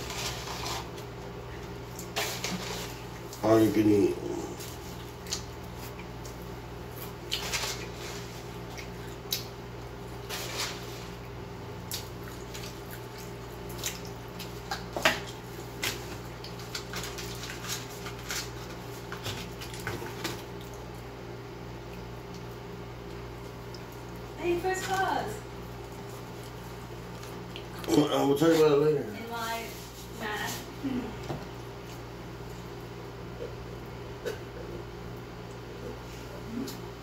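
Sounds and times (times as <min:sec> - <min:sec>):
wet chewing and lip smacks: 0:04.9 - 0:07.4, 0:08.6 - 0:09.6, 0:11.8 - 0:16.9, 0:25.8 - 0:27.9.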